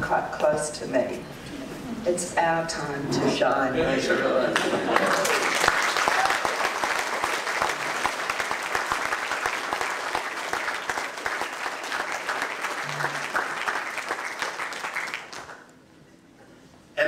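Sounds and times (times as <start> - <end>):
audience applauding: 4.6 - 15.7.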